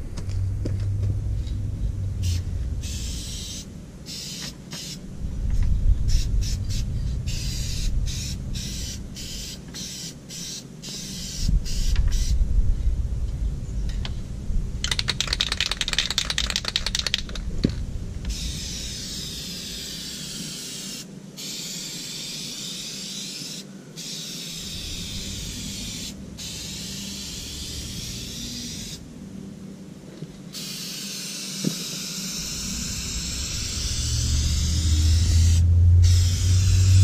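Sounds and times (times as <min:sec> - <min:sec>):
low vehicle rumble: 0:00.0 - 0:04.1, 0:05.0 - 0:09.4, 0:11.5 - 0:18.6, 0:32.4 - 0:37.0
aerosol spray can hissing: 0:02.2 - 0:05.0, 0:06.1 - 0:12.4, 0:14.8 - 0:17.4, 0:18.3 - 0:29.0, 0:30.5 - 0:37.0.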